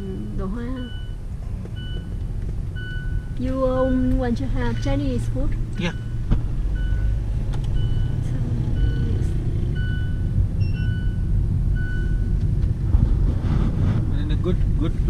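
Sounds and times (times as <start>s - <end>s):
short electronic beeps: 0.0s - 1.2s, 2.8s - 4.0s, 5.8s - 6.2s, 6.8s - 12.4s
car road and engine rumble: 0.0s - 15.0s.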